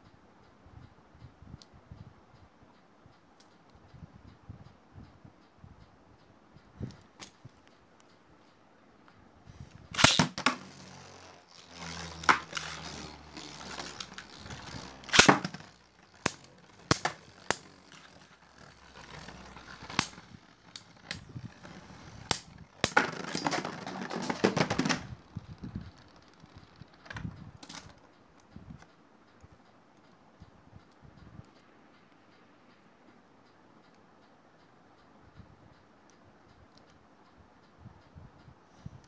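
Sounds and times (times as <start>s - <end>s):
faint spinning whir: 9.2s - 22.9s
spinning tops clacking: 9.9s - 25.0s.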